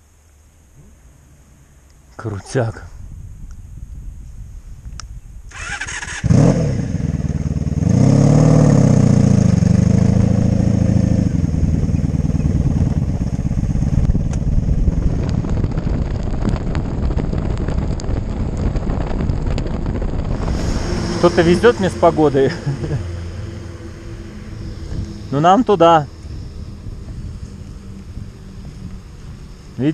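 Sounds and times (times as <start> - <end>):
motorcycle engine revving: 5.5 - 29.9.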